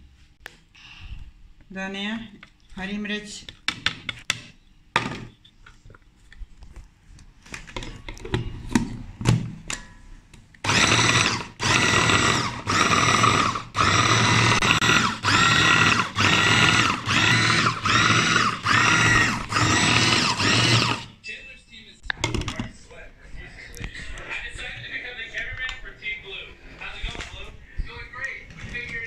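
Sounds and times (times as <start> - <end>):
chopper motor whining: 10.6 - 21.1.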